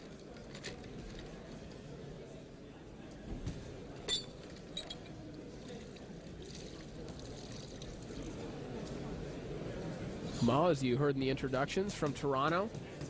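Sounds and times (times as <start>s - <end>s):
crowd murmur: 4.7s - 10.6s.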